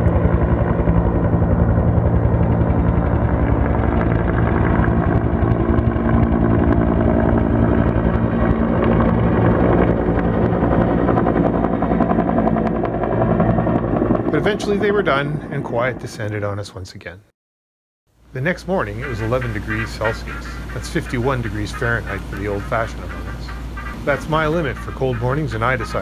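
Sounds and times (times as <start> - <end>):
helicopter rotor chopping overhead: 0.0 - 16.6, 18.4 - 26.0.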